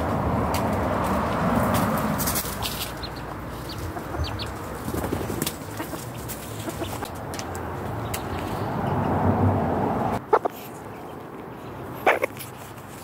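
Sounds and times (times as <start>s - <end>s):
chick chirping: 2.5s - 7.1s, 10.2s - 12.4s
wings flapping: 3.7s - 7.1s.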